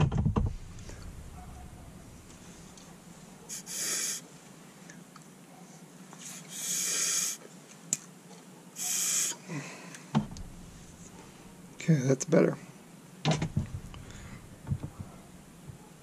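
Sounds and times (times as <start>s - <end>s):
hissing puffs of air: 0.5s - 4.3s, 6.2s - 7.4s, 8.8s - 9.6s.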